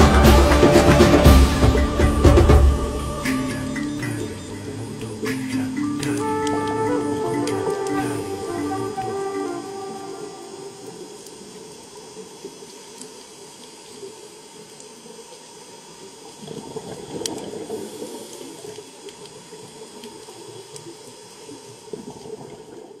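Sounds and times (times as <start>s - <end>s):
underwater watery hiss: 0.0s - 23.0s.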